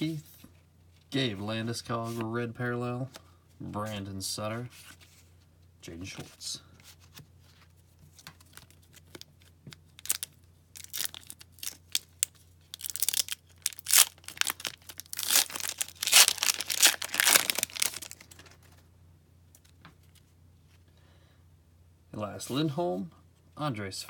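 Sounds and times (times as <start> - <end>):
wrapper tearing and crinkling: 8.4 - 18.6.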